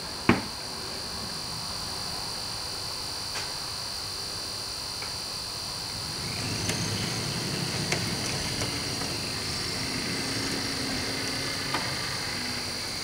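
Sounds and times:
diesel engine sound from speaker: 0:05.9 - 0:13.0.

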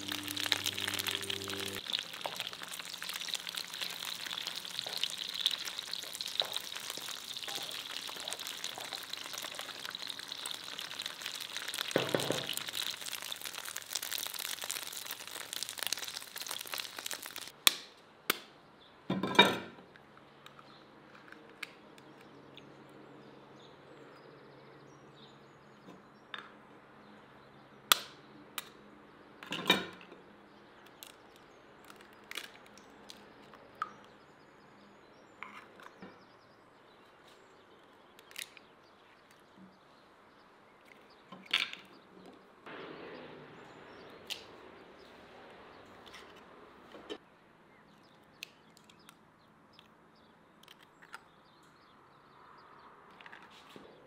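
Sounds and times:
crackling hiss: 0:00.0 - 0:17.6.

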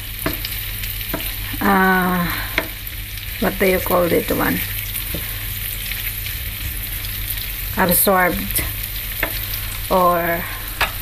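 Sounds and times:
potatoes sizzling in butter: 0:00.0 - 0:11.0.

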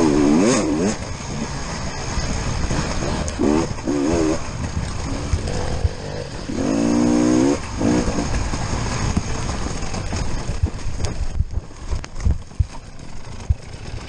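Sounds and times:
dirt bike engine revving: 0:00.0 - 0:11.2.

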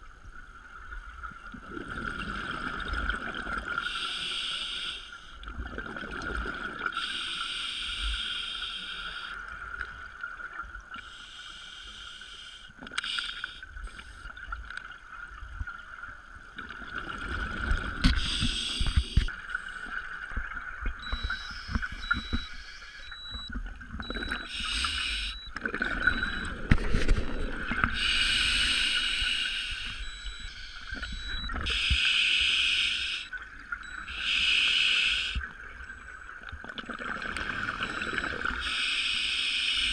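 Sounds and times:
steady high hum: 0:21.0 - 0:36.3
diver breathing through regulator: 0:27.8 - 0:30.3, 0:34.1 - 0:35.4.

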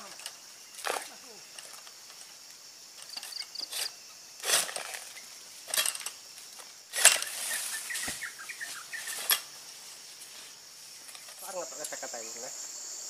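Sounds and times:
sickle cutting palm stalks: 0:00.0 - 0:02.2, 0:03.0 - 0:11.5
frond rustling as it falls: 0:04.4 - 0:11.5.

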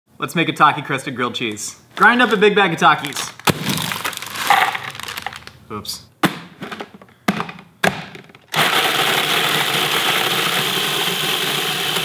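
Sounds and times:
food processor motor grinding: 0:08.5 - 0:12.0.

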